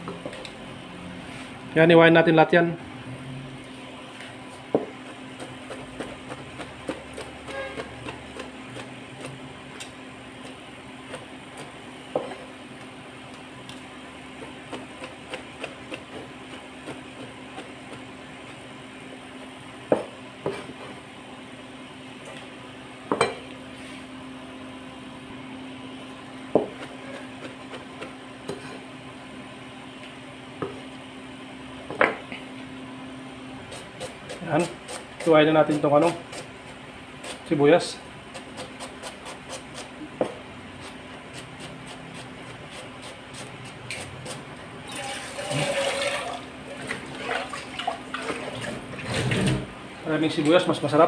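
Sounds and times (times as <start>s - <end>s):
knife chopping on cutting board: 4.7s - 12.5s, 19.9s - 20.8s, 26.5s - 28.8s, 38.3s - 44.4s.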